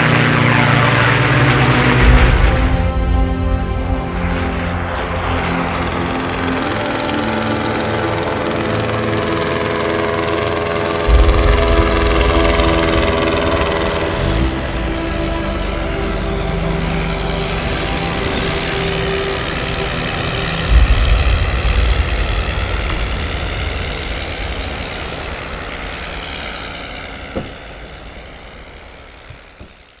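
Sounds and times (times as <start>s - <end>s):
rotary aircraft engine running: 0.0s - 30.0s
deep boom with heavy rumble: 1.7s - 4.7s, 11.1s - 15.5s, 17.4s - 25.8s.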